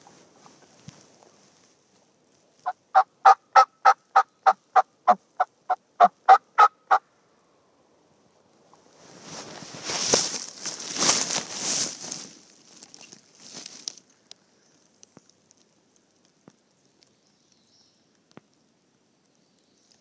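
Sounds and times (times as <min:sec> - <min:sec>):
turkey yelping: 0:02.9 - 0:07.0
clothing rustling: 0:08.9 - 0:14.0.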